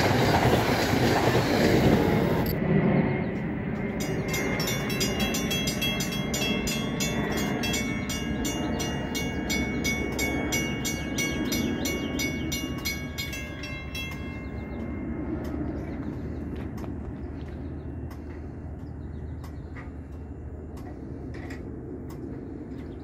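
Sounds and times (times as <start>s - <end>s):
level crossing warning bell: 3.8s - 16.6s.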